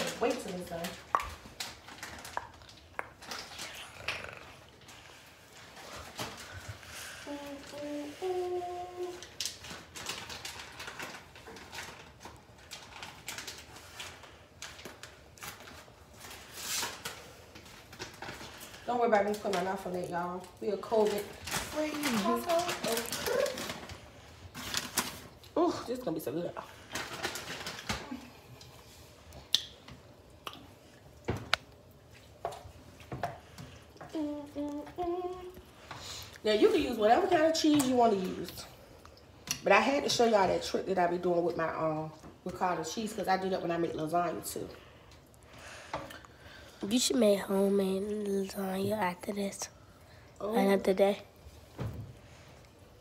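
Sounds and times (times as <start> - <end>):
person humming: 34.1 - 35.6.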